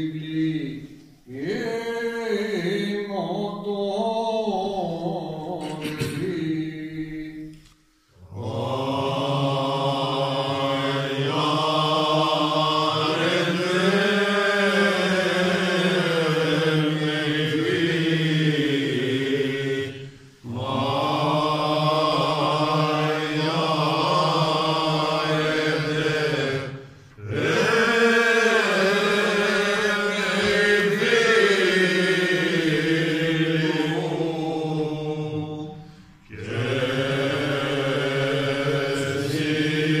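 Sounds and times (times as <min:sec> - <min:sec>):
man singing unaccompanied: 0:00.0 - 0:07.5.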